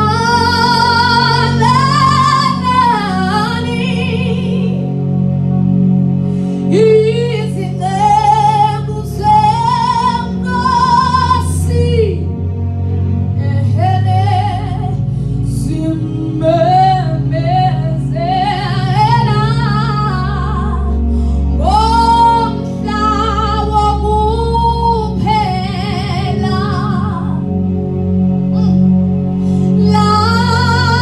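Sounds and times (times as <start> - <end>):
woman singing worship song: 0.0 - 5.0, 6.6 - 12.4, 13.4 - 27.6, 29.5 - 31.0
low sustained accompaniment: 0.0 - 31.0.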